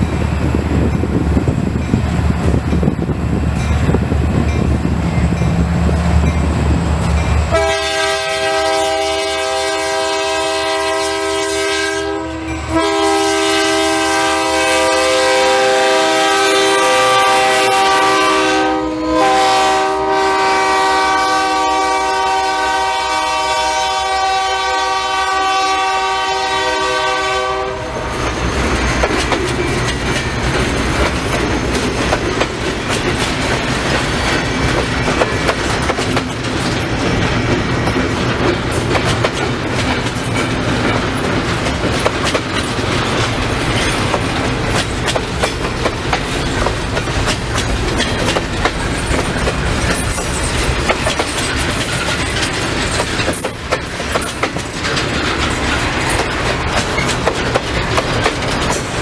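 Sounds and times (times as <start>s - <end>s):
diesel locomotive engine rumble: 0.0s - 59.0s
train horn blasts: 7.5s - 28.2s
train cars clattering over rail joints: 28.0s - 59.0s.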